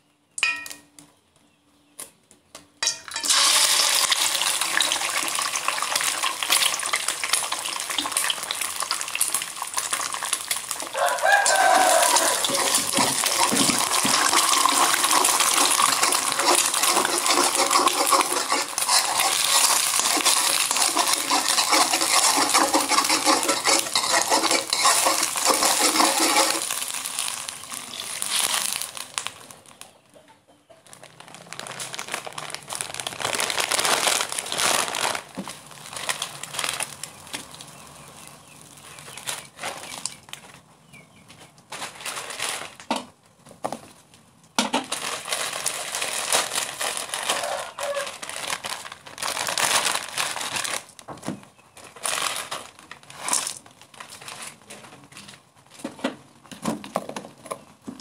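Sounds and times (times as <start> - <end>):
egg sizzling in hot oil: 3.1 - 29.3
spatula scraping pan: 11.7 - 28.1.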